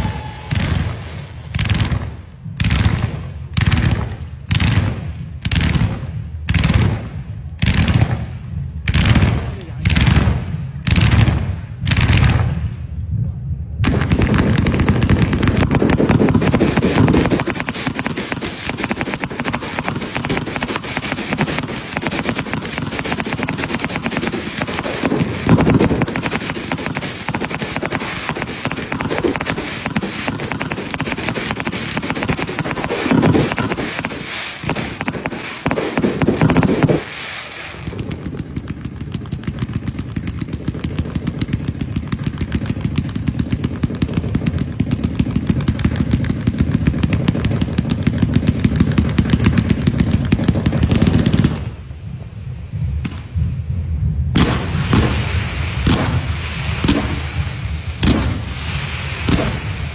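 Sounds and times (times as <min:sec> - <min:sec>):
firework bangs: 0:00.0 - 0:59.9
fireworks shots and crackling bursts: 0:00.0 - 0:59.9.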